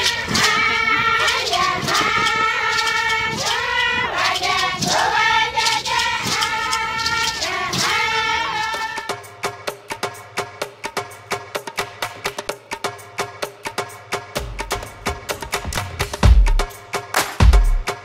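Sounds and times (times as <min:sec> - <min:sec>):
women chanting in unison: 0:00.0 - 0:09.2
sharp rhythmic beats: 0:00.0 - 0:18.0.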